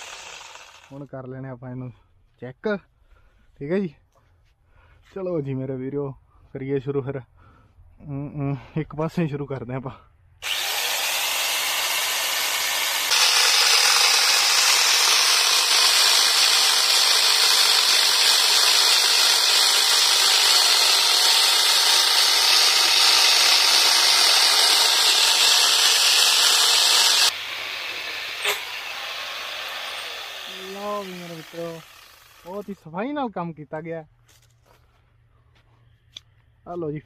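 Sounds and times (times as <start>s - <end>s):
chainsaw cutting wood: 0.0s - 1.0s, 10.4s - 32.6s.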